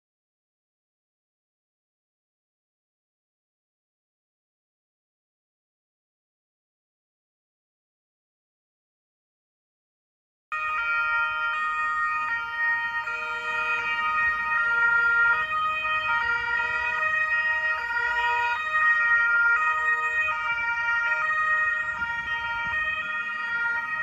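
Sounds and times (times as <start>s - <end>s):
two-tone police sirens: 10.5s - 24.0s.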